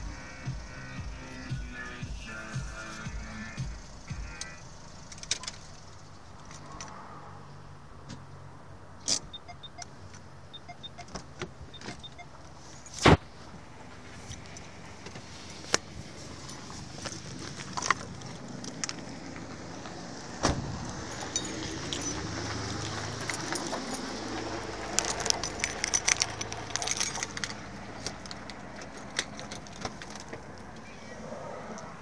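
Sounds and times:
keys jangling: 5.0s - 7.0s, 14.2s - 19.2s, 20.8s - 30.7s.

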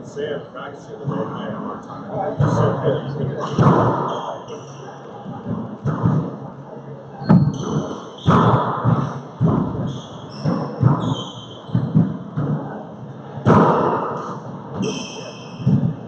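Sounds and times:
sneakers squeaking on hardwood: 3.4s - 6.4s, 7.2s - 12.7s.

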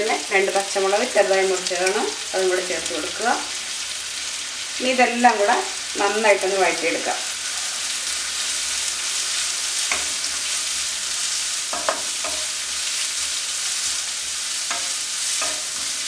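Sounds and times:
onions sizzling in hot oil: 0.0s - 16.0s.

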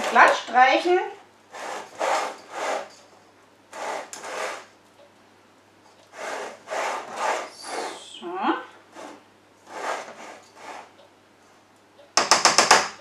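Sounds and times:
spatula scraping cake batter: 0.0s - 0.9s, 1.5s - 3.0s, 3.7s - 4.7s, 6.0s - 8.0s, 8.9s - 10.9s.

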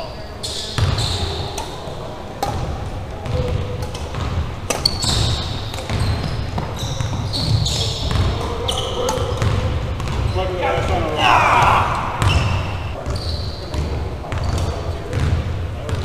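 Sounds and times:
sneakers squeaking on court: 0.0s - 16.0s
racket hitting shuttlecock: 0.8s - 6.0s, 6.6s - 10.3s.

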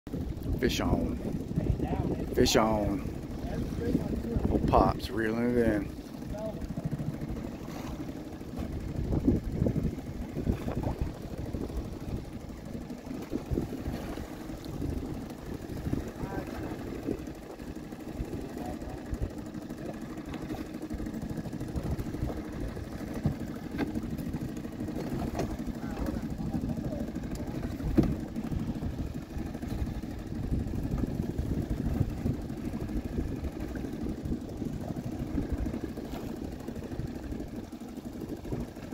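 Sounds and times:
outboard motor idling: 0.1s - 38.9s.

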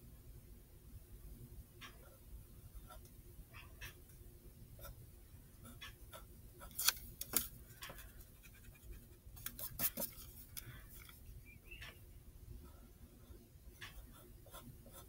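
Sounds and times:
pencil scratching on paper: 8.0s - 10.5s, 12.7s - 15.0s.

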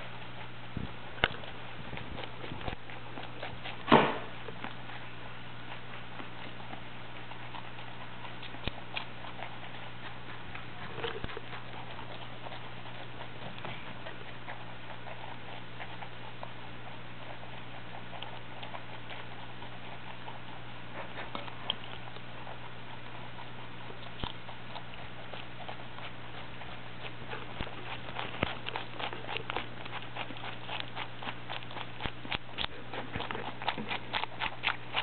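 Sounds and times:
rabbits chewing vegetables: 0.0s - 35.0s
steady low hum: 0.0s - 35.0s
loud knock: 3.9s - 4.3s.

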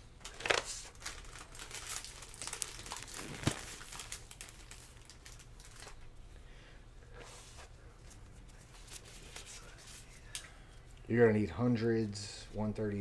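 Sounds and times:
card packaging crackling: 0.2s - 6.0s.

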